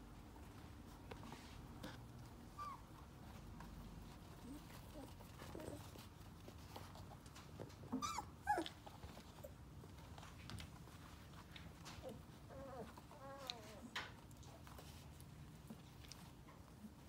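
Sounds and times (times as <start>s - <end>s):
puppies yelping and whining: 2.5s - 2.9s, 7.9s - 9.6s.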